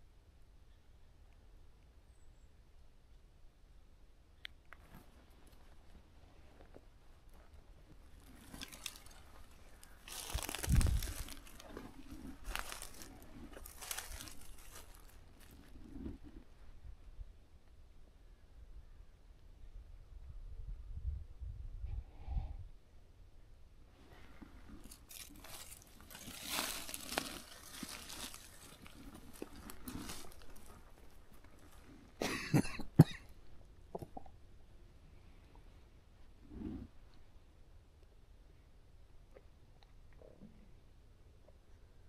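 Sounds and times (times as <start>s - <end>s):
footsteps crunching dry leaves: 8.1s - 15.7s, 24.8s - 31.8s.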